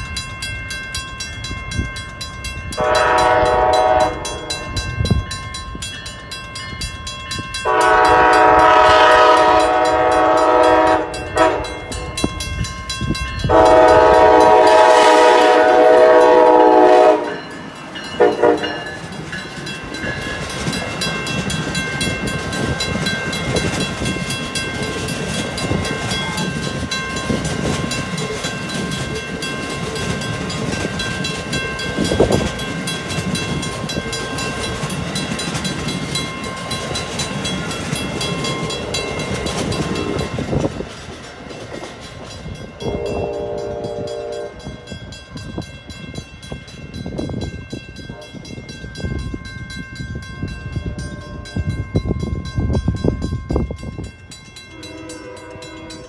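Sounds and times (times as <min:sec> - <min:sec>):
crossing bell ringing: 0:00.0 - 0:56.0
train cars rumbling over rails: 0:00.0 - 0:56.0
train horn blasts: 0:02.8 - 0:05.2, 0:07.6 - 0:12.3, 0:13.4 - 0:19.0, 0:42.8 - 0:44.9, 0:48.0 - 0:48.5, 0:54.7 - 0:56.0.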